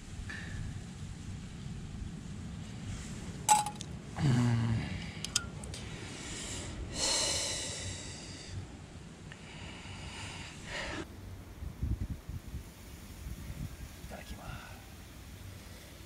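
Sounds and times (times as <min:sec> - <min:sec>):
man humming: 0:04.2 - 0:05.0
long breath: 0:05.8 - 0:08.7, 0:09.3 - 0:11.1.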